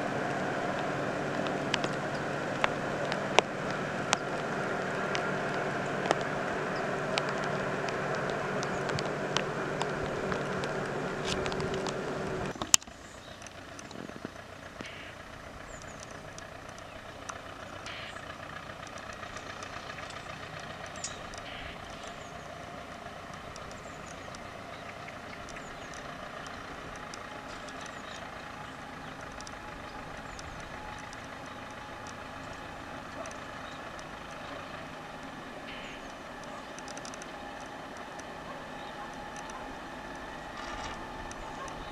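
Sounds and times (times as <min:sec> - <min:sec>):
distant train rumble: 0:00.0 - 0:41.9
mechanical hum with tones: 0:00.0 - 0:41.9
faint high chirps: 0:35.6 - 0:41.9.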